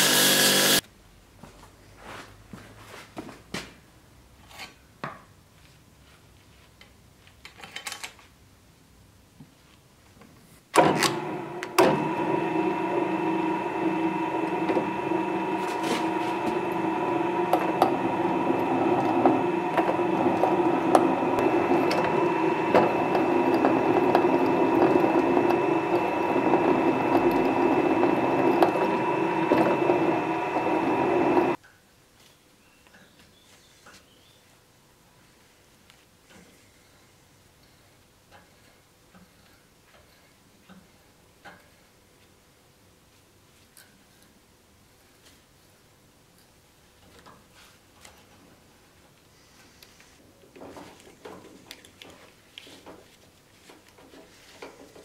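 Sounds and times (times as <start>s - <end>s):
drill press drilling into steel: 0.0s - 0.8s, 10.8s - 31.6s.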